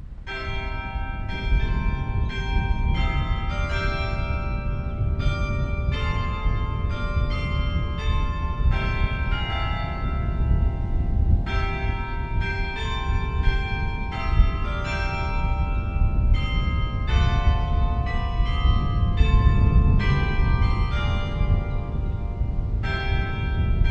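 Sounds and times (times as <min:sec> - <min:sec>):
steady low rumble: 0:00.0 - 0:23.9
carillon bells ringing: 0:00.3 - 0:23.9.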